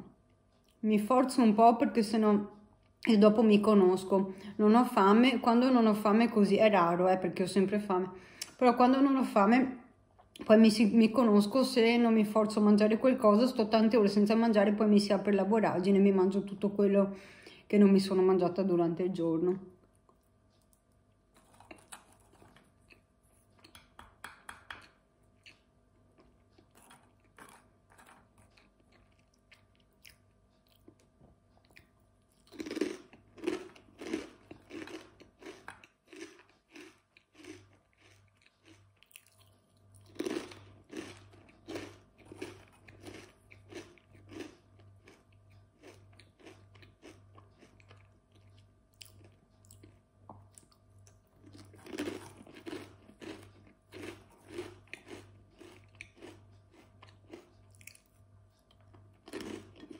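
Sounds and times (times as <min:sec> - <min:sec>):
chewing close to microphone: 0:20.1 - 0:24.0, 0:26.2 - 0:59.9
crunchy food bites: 0:31.7 - 0:58.1, 0:58.7 - 0:59.9.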